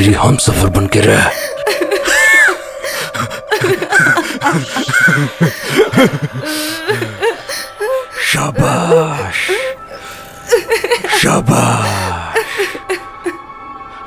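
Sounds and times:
woman sobbing: 1.3 - 13.7
man laughing: 1.4 - 7.5, 8.3 - 9.7, 10.5 - 13.4
high-pitched cry: 1.6 - 8.0.

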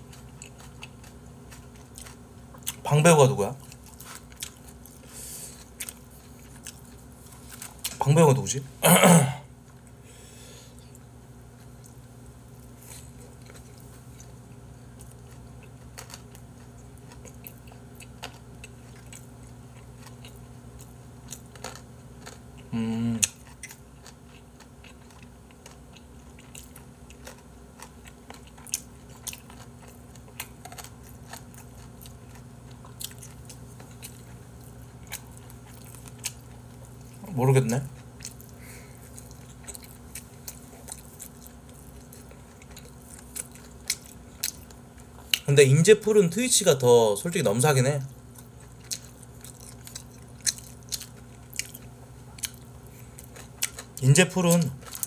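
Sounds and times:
person chewing: 0.0 - 2.8, 3.6 - 8.0, 9.2 - 45.5, 48.2 - 55.0
steady low hum: 0.0 - 55.0
short vocal sound: 22.7 - 23.3.

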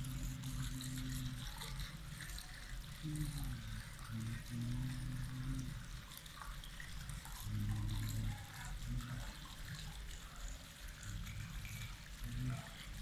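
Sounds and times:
fountain splashing into pool: 0.0 - 13.0.

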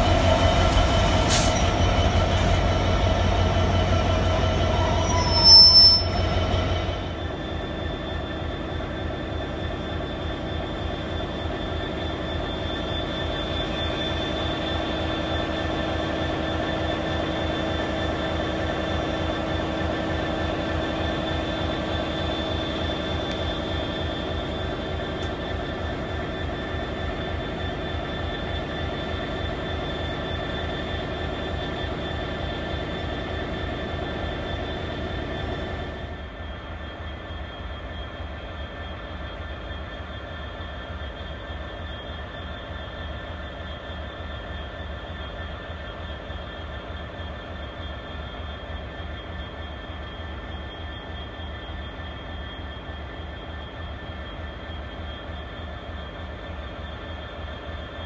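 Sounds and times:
locomotive low rumble: 0.0 - 7.2
locomotive drone with high whine: 0.0 - 58.0.

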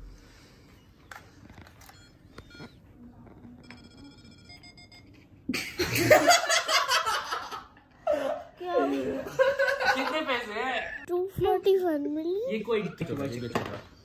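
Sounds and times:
short electronic beeps: 1.9 - 2.8.

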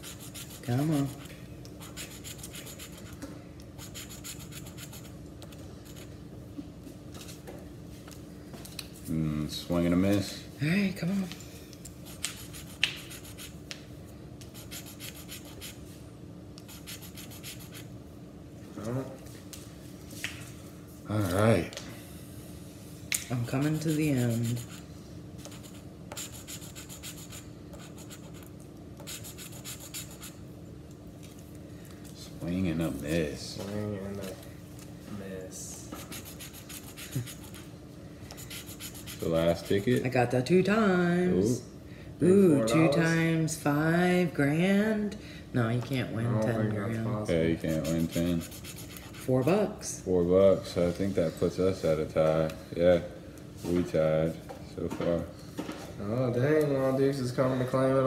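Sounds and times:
coin scraping a scratch card: 0.0 - 3.2, 3.8 - 5.1, 23.6 - 24.8, 25.4 - 30.4, 36.0 - 37.6, 38.4 - 40.0, 47.6 - 49.3.

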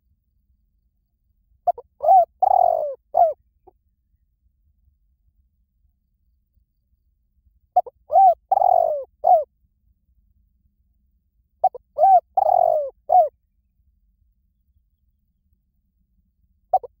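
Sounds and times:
dove cooing: 1.6 - 3.4, 7.8 - 9.5, 11.6 - 13.3, 16.7 - 17.0.

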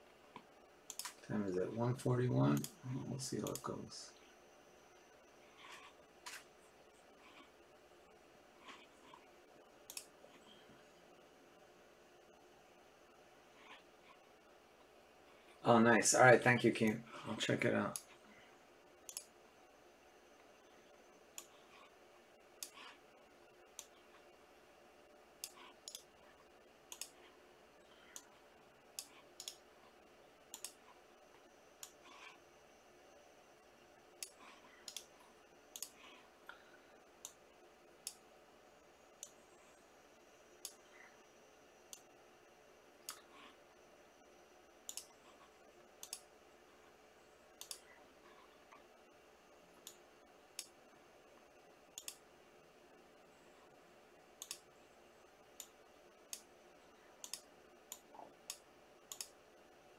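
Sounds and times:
faint steady hum: 0.0 - 59.9
sharp clicks: 0.9 - 1.2, 9.9 - 10.1, 25.4 - 26.1, 26.9 - 27.2, 29.0 - 29.6, 30.5 - 30.8, 34.2 - 35.1, 35.7 - 36.0, 44.9 - 45.1, 46.0 - 46.3, 47.6 - 47.8, 51.9 - 52.2, 54.4 - 54.7, 57.2 - 59.4.

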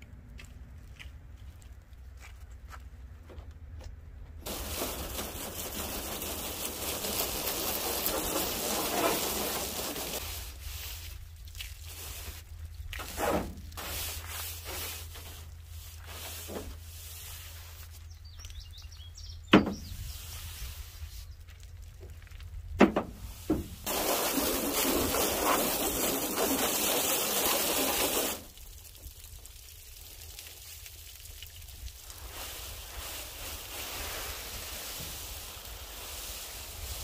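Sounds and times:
hose water spraying: 4.4 - 17.9, 23.2 - 37.0
brush scrubbing bed liner: 4.5 - 11.0, 23.9 - 28.4.

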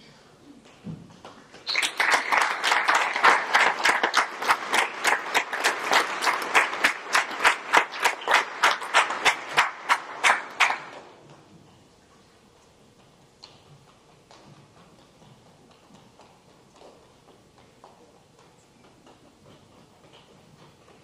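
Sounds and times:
applause: 1.6 - 11.0
close loud hand claps: 1.6 - 11.0.

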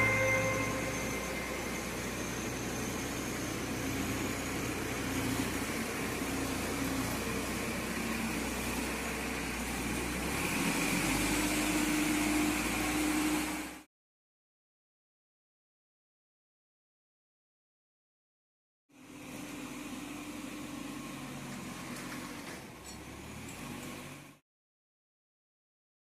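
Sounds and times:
diesel engine running: 0.0 - 13.8.

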